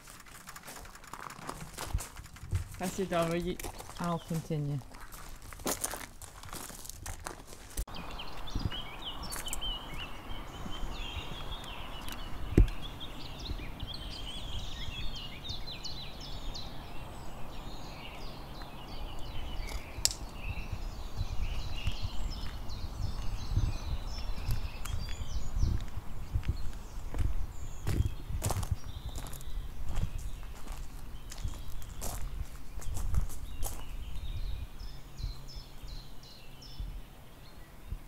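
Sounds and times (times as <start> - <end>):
birds singing: 2.7 - 6.7, 7.9 - 38.0.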